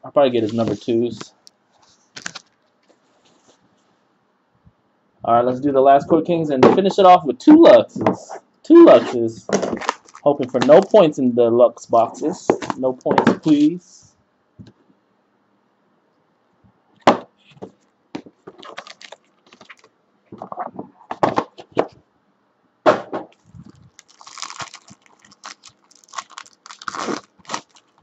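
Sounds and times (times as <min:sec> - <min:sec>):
foil wrapper crinkling: 0:02.0 - 0:02.8, 0:09.5 - 0:11.1, 0:18.4 - 0:19.9, 0:23.4 - 0:28.0.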